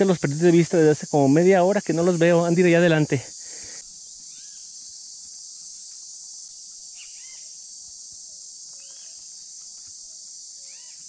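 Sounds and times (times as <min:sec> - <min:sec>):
high-pitched insect chorus: 0:00.0 - 0:11.0
faint bird chirps: 0:04.0 - 0:04.8, 0:06.9 - 0:07.6, 0:08.2 - 0:09.4, 0:10.0 - 0:11.0.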